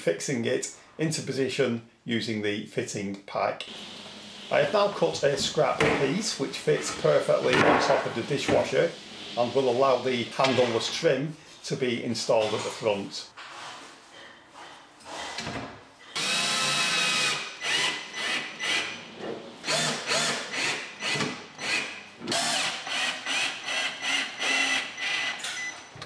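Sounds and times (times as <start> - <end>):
cordless drill driving screws: 16.2 - 19.0, 19.6 - 25.7.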